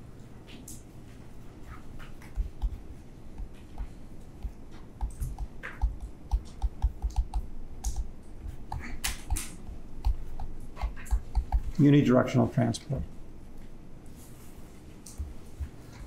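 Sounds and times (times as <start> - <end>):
stylus tapping on a tablet: 2.1 - 11.8.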